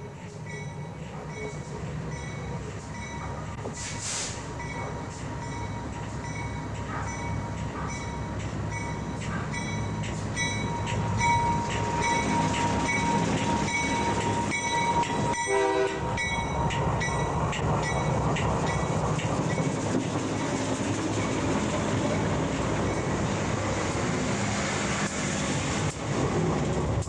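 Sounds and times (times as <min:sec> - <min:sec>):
crossing bell dinging: 0:00.0 - 0:03.6, 0:04.5 - 0:23.6
freight train rolling over rails: 0:00.0 - 0:27.0
train horn blast: 0:15.1 - 0:16.3.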